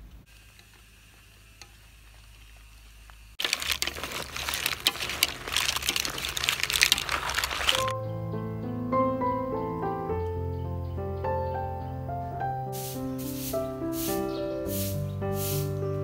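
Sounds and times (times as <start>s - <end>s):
mussel shells clattering in wok: 3.4s - 7.9s
broth bubbling hiss: 12.8s - 15.8s.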